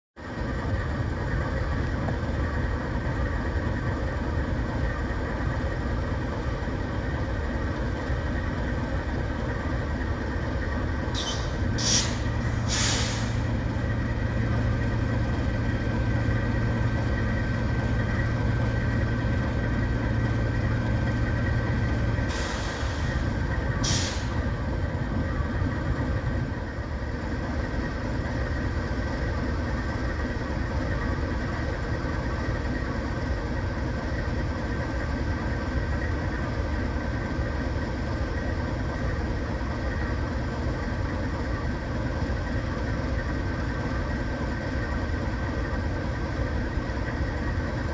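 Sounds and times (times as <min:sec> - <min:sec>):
diesel locomotive idling: 0:00.2 - 0:47.9
sharp air hisses: 0:11.2 - 0:13.5, 0:22.3 - 0:23.2, 0:23.8 - 0:24.4.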